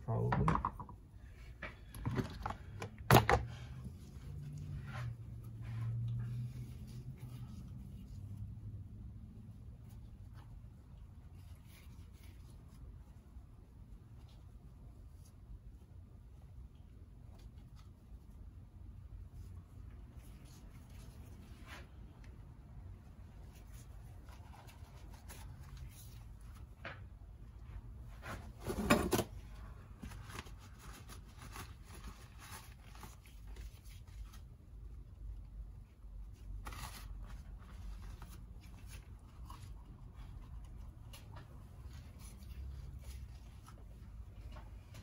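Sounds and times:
scrape: 3.8s - 8.8s, 19.4s - 22.2s.

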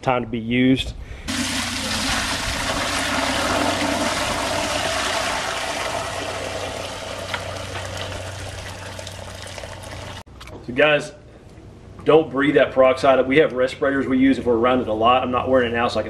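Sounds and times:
liquid pouring and splashing into pot: 1.3s - 10.2s.

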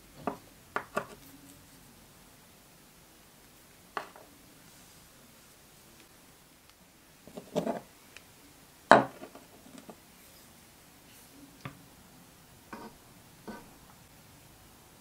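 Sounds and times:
metal scraping on wood: 12.7s - 13.7s.

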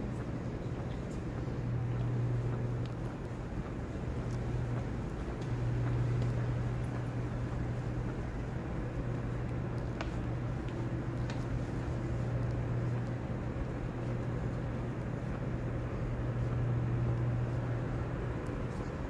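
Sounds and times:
low rumble and hum of church interior: 0.0s - 19.0s
faint ticks: 0.8s - 3.2s.

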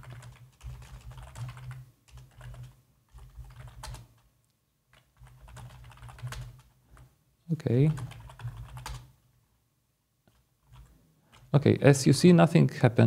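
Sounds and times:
keyboard typing: 0.0s - 4.3s, 4.9s - 7.1s, 7.8s - 9.1s, 10.3s - 11.6s.

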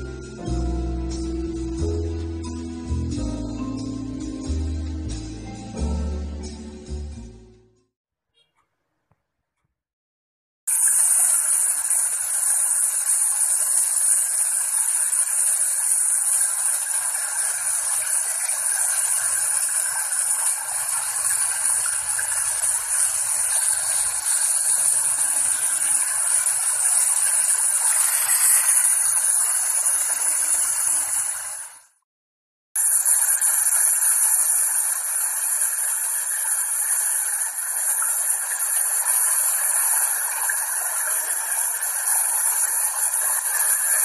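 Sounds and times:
steady rain: 12.2s - 28.4s.

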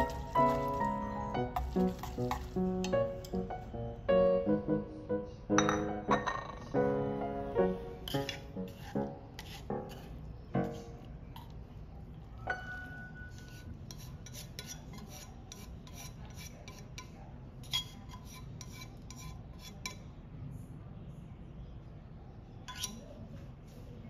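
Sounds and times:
utensil scraping ceramic plate: 8.1s - 10.2s, 13.3s - 20.0s.

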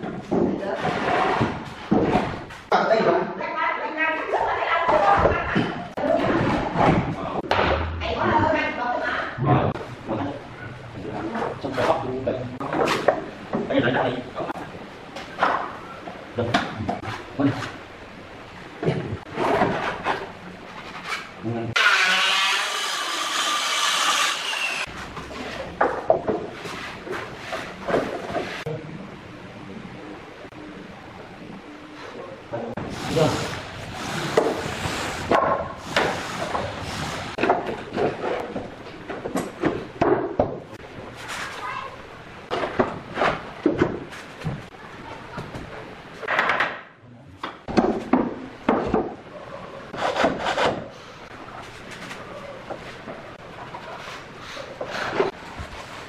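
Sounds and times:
circular saw whining through wood: 21.8s - 24.9s.

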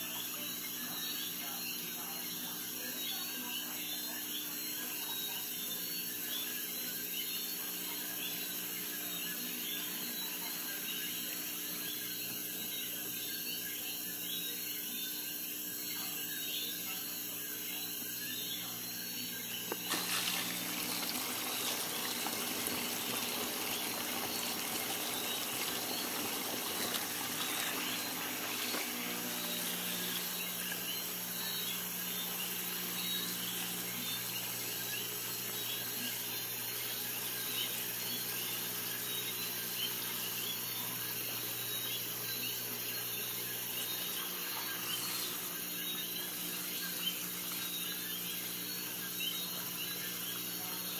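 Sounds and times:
steady electrical hum: 0.0s - 50.9s
water pouring and bubbling: 19.8s - 31.2s.

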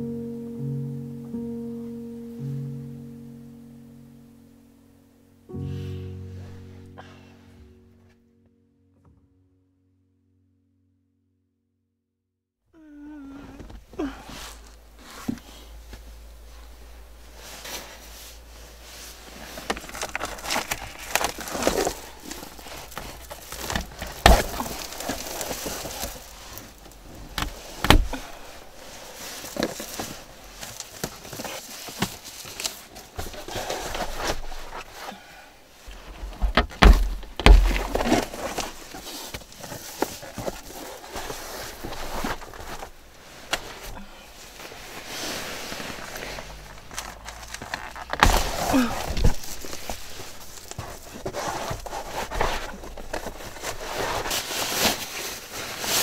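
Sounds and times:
foil crinkling and rustling: 14.0s - 35.2s, 35.8s - 56.0s
knocks and thumps: 36.1s - 38.7s.

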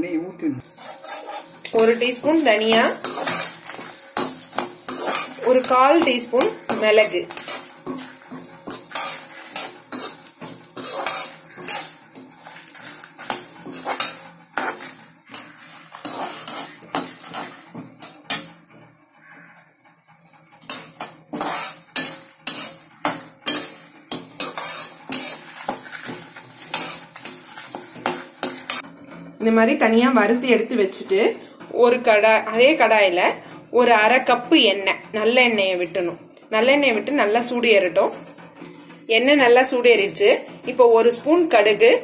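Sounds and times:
metal skimmer scraping steel pan: 0.6s - 28.9s.

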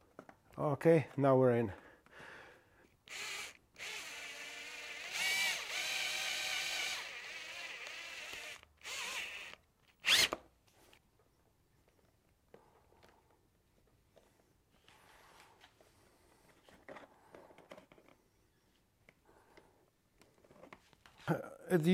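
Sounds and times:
cordless drill drilling plastic: 3.1s - 10.4s.

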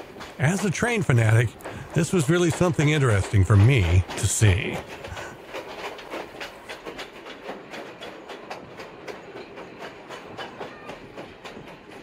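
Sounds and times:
train rolling rumble: 0.0s - 12.0s
train wheels clicking over rail joints: 0.0s - 12.0s.

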